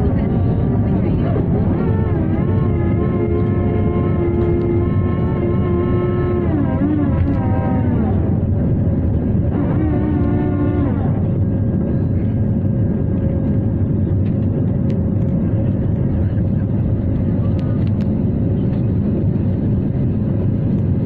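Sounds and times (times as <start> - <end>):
jet engines rumbling: 0.0 - 21.0
wavering pitched sound: 1.3 - 8.6.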